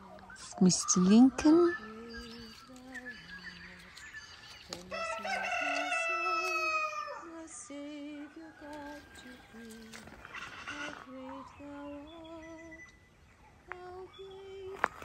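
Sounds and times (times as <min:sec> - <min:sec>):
person humming a slow tune: 0:00.8 - 0:12.9
rooster crowing: 0:04.7 - 0:11.1.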